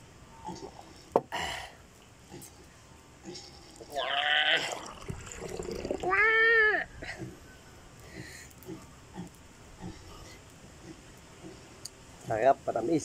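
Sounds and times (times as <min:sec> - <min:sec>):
animal cry: 0:03.9 - 0:05.0
coconut water pouring into glass: 0:04.0 - 0:06.3.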